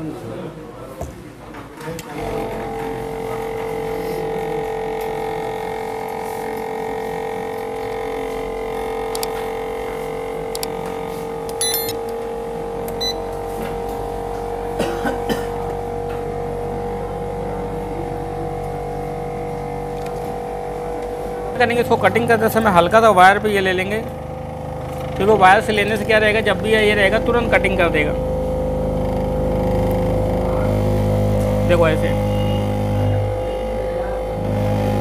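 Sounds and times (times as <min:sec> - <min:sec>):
machine electric hum: 0:02.0 - 0:35.0.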